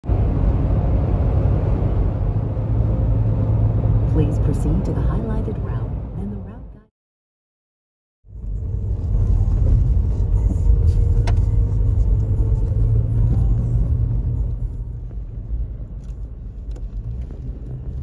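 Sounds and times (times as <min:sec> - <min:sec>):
vehicle driving on gravel: 0:08.5 - 0:18.0.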